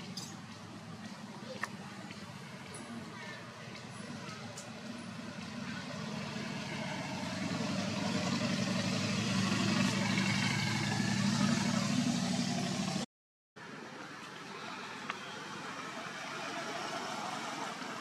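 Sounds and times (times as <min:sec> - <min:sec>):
vehicle engine running: 0:03.8 - 0:13.0.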